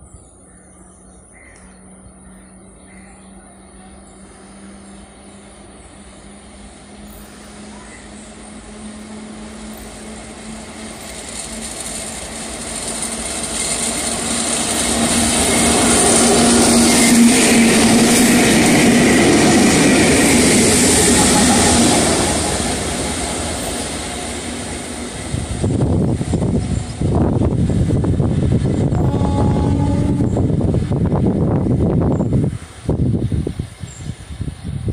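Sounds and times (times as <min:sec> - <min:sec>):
electric locomotive hum: 0:00.0 - 0:34.9
wheels rumbling on rails: 0:00.0 - 0:34.9.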